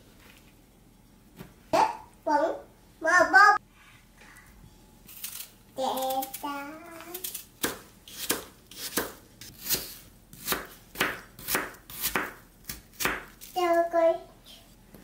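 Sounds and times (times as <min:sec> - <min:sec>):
knife chopping on cutting board: 0:07.2 - 0:13.3.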